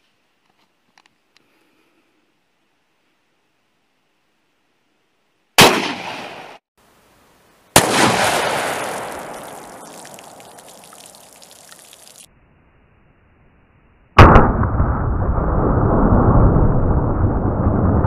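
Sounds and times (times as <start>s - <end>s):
pistol shots: 5.6s - 6.4s, 7.8s - 9.3s
gunshot echo: 5.6s - 6.6s, 7.8s - 9.8s, 14.2s - 15.4s.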